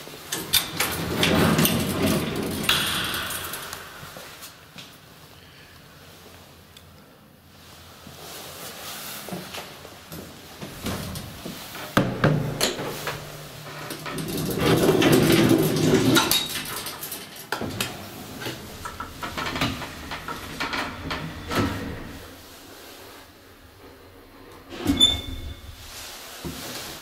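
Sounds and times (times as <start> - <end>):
metal scissor gate rattling: 0.6 - 4.0.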